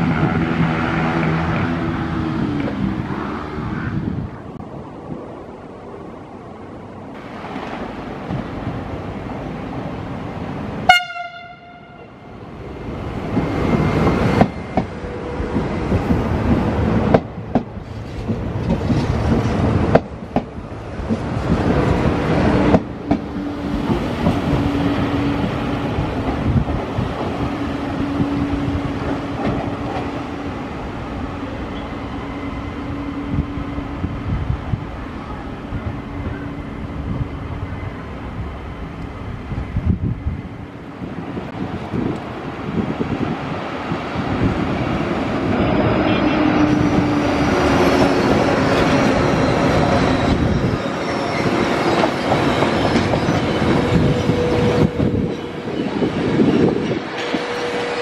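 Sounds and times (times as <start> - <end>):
train wheel and rail rumble: 0.0 - 58.0
train horn blast: 10.8 - 12.3, 45.9 - 47.2, 57.2 - 58.0.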